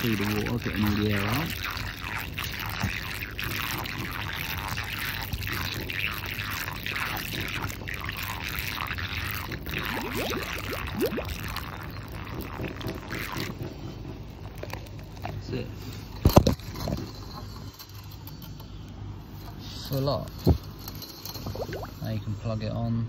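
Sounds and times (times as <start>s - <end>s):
water gurgling in hose: 0.0s - 13.6s, 21.4s - 22.0s.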